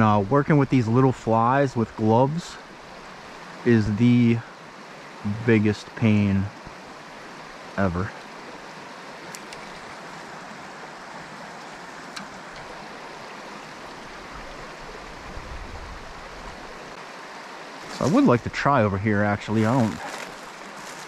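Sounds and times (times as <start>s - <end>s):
stream water rushing: 0.0s - 21.0s
faint clicks: 9.3s - 9.9s, 12.1s - 12.8s.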